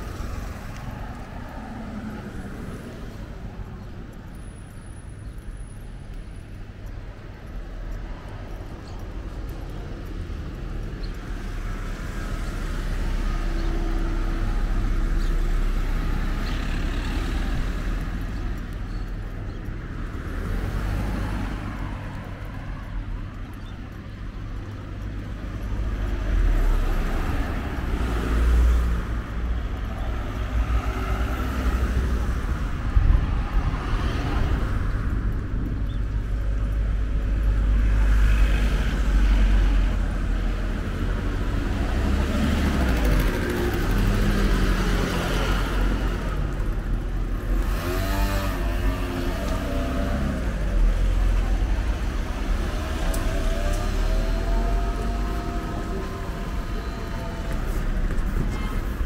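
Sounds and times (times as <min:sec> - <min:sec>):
deep traffic rumble: 0:00.0 - 0:59.0
cars driving past: 0:24.5 - 0:59.0.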